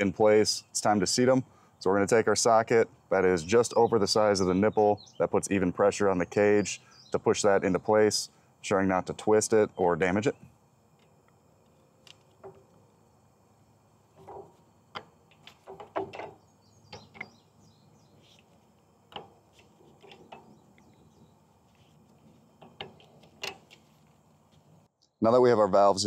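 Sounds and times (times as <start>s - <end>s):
metal tools clicking and knocking: 14.2s - 17.4s, 22.6s - 23.8s.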